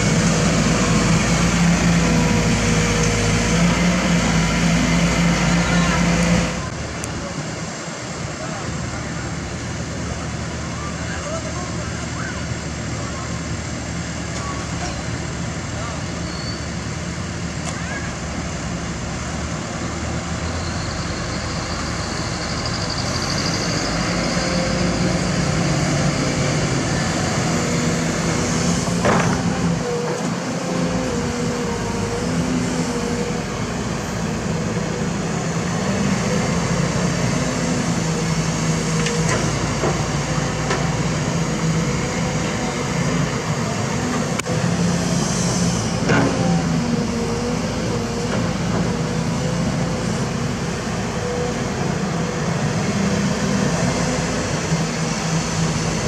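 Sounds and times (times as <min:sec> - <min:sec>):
excavator diesel engine: 0:00.0 - 0:56.0.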